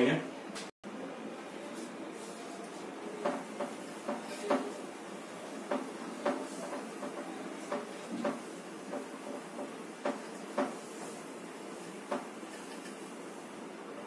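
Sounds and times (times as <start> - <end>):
eraser rubbing on whiteboard: 5.5 - 12.7.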